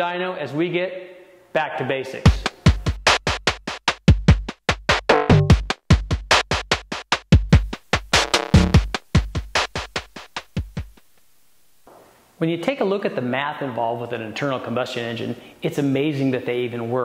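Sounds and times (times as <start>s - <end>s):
electronic music with drum-machine beat: 2.3s - 11.1s.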